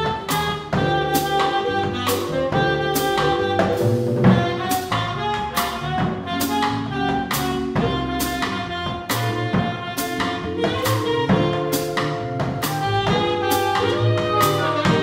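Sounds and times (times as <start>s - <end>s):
drum kit with cymbal strokes: 0.0s - 15.0s
keyboard: 0.0s - 15.0s
reed instrument melody: 0.0s - 15.0s
upright bass: 0.0s - 15.0s.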